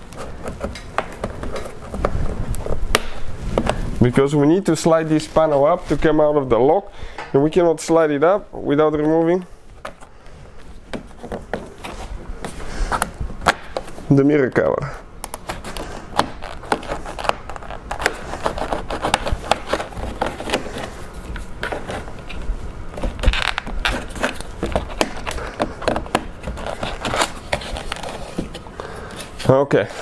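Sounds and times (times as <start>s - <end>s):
plastic pry tool scraping plastic: 15.2s - 22.4s, 23.0s - 28.6s.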